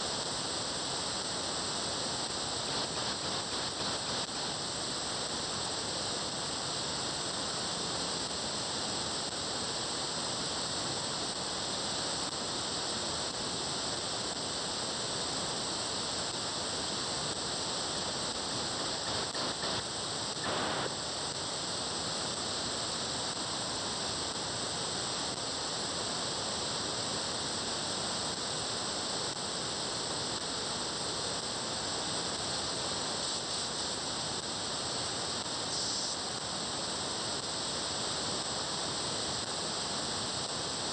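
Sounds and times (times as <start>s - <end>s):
radio static: 20.4s - 21.0s.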